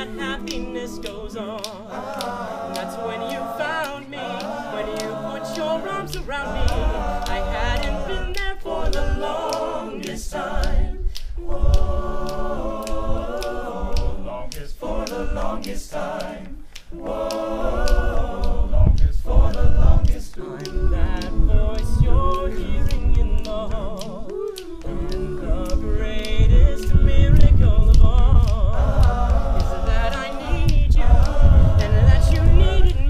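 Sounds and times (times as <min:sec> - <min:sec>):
men singing in close harmony: 0:00.0 - 0:33.0
solo lead voice singing: 0:17.3 - 0:33.0.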